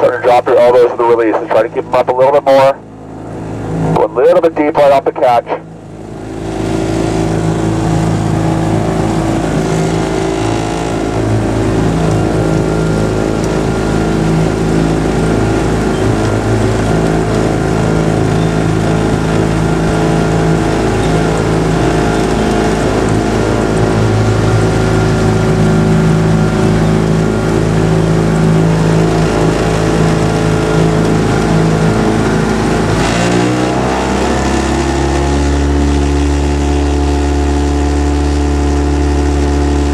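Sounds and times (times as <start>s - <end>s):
motorboat engine running: 0.0s - 39.9s
water noise: 0.0s - 39.9s.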